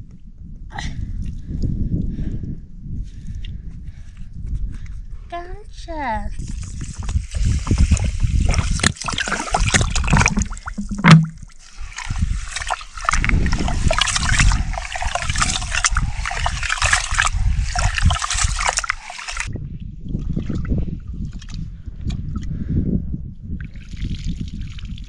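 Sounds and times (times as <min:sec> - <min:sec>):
hand swishing rice in water: 0:06.4 - 0:19.5
water pouring from plastic bottle: 0:06.4 - 0:19.5.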